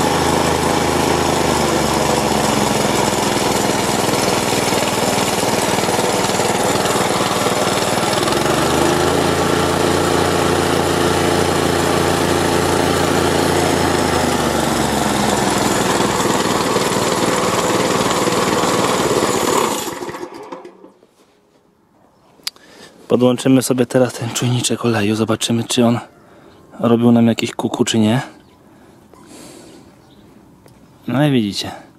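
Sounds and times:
plate compactor engine running: 0.0 - 21.0.

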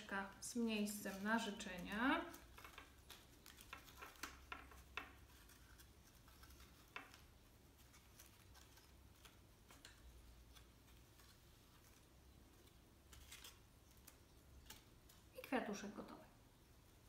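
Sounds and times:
paper rustling and ticking: 0.0 - 15.8.

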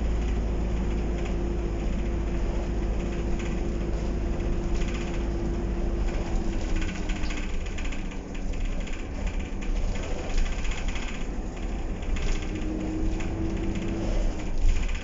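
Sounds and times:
bus engine and road rumble: 0.0 - 15.0
interior fittings rattling: 0.0 - 15.0.

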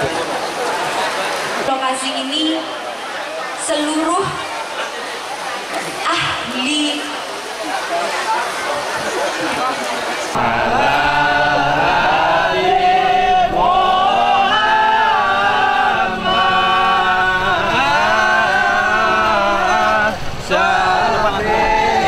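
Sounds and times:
men chanting in unison: 10.3 - 22.0.

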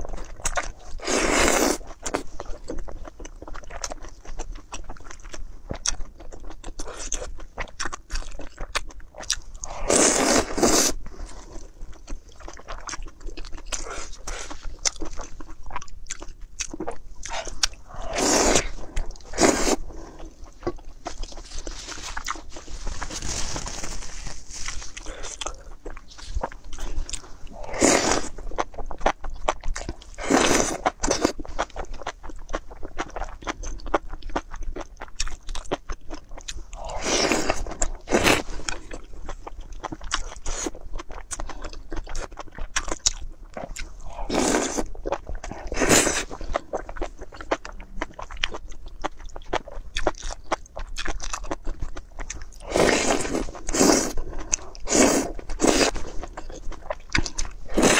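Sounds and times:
chewing clicks and smacks: 46.4 - 52.6.

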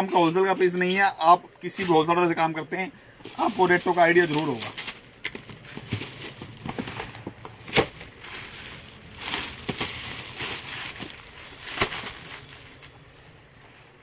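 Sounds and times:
plastic packet crinkling: 3.3 - 13.6.

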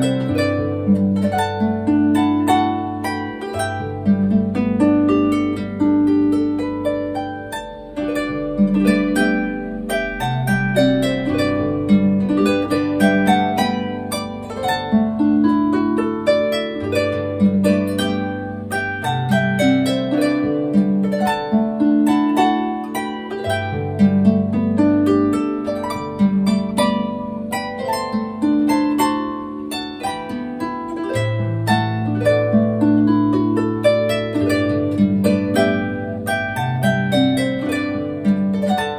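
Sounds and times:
harp music: 0.0 - 38.9.

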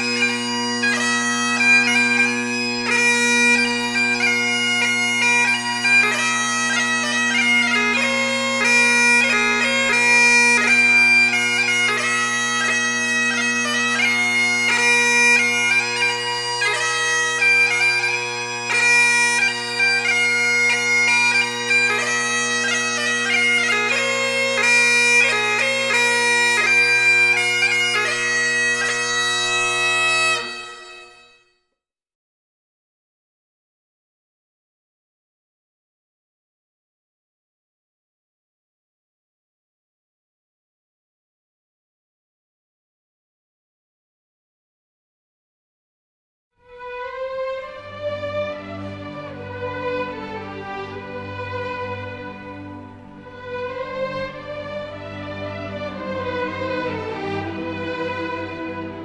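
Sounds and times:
bagpipes playing a tune: 0.0 - 31.5, 46.6 - 59.0.

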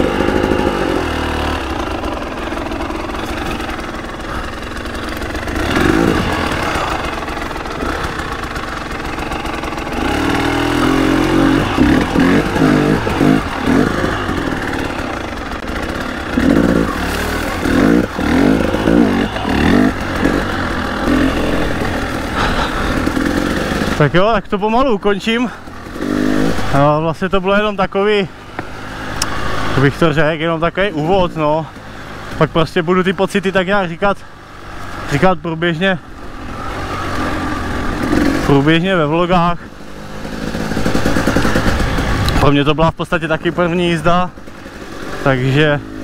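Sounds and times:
motorcycle engine revving: 0.0 - 46.0.

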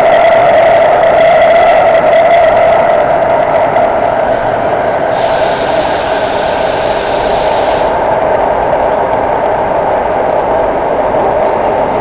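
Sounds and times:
train running through tunnel: 0.0 - 12.0
high hiss: 4.0 - 8.2.

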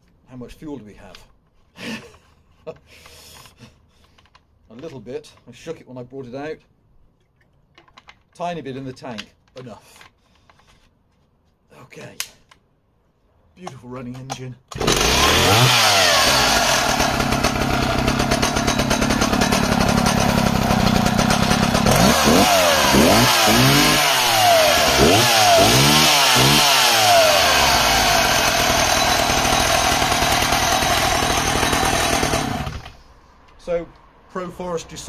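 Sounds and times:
chainsaw engine idling and revving: 14.7 - 33.0.

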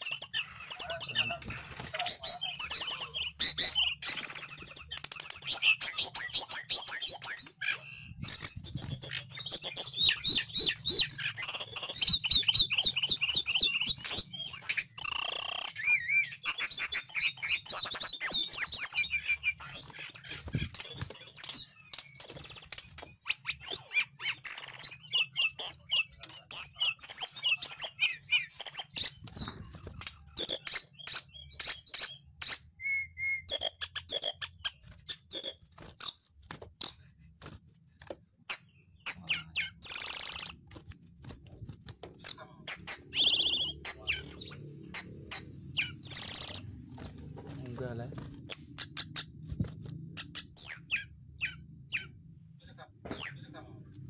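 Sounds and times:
bird singing whistled trills: 0.0 - 22.6, 23.2 - 35.5, 42.7 - 46.8.

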